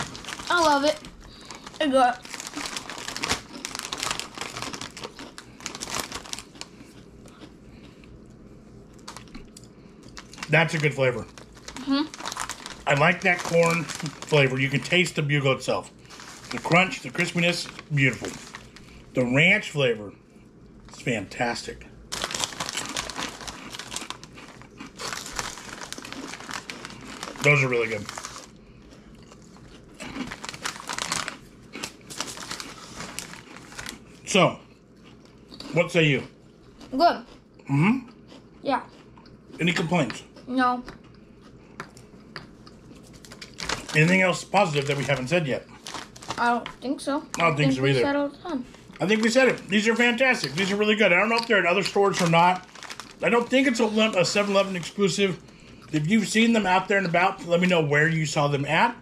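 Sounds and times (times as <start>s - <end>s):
snack bag rustling: 0.0s - 7.5s, 8.9s - 19.1s, 22.0s - 34.4s, 41.4s - 48.0s, 48.6s - 57.7s.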